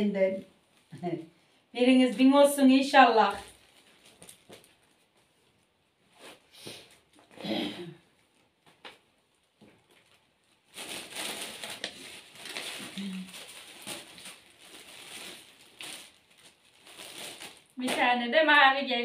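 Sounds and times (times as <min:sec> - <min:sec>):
plastic wrapping crinkling: 0:00.0 - 0:01.2, 0:01.8 - 0:07.4, 0:08.1 - 0:18.7
short voice sound: 0:12.9 - 0:13.3.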